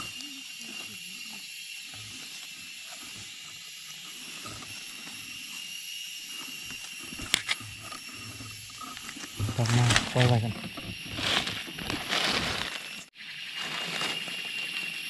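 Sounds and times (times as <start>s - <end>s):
insects droning: 0.0s - 15.0s
rustles in leaf litter: 9.4s - 15.0s.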